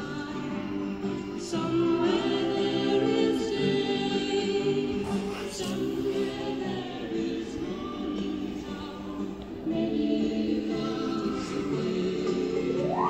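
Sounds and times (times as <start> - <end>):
choir singing held notes: 0.0 - 13.0.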